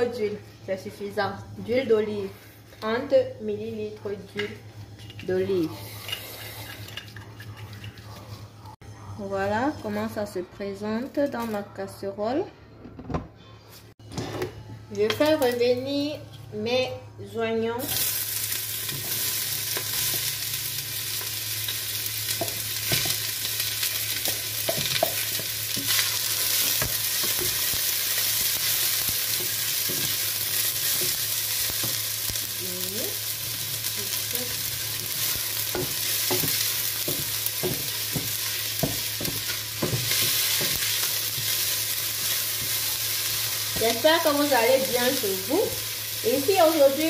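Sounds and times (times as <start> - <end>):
onions sizzling in oil: 17.8 - 47.0.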